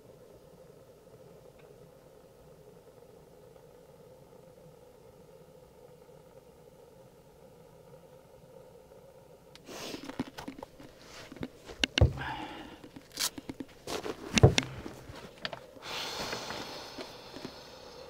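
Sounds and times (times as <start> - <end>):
faint steady hum: 0.0 - 18.0
rustling and handling noise: 9.6 - 17.7
heavy thumps: 11.3 - 15.6.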